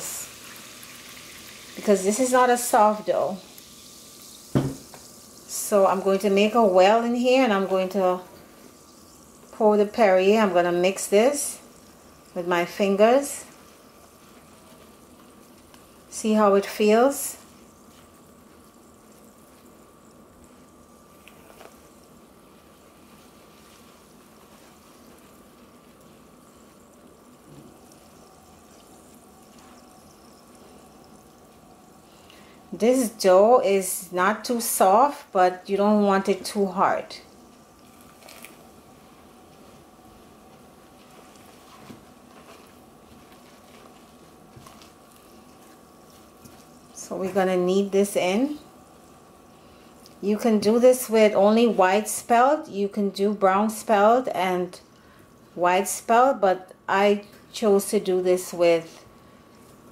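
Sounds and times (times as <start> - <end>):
faint steady hum: 0.0 - 59.9
hand squishing wet dough: 13.5 - 16.3, 40.5 - 47.5.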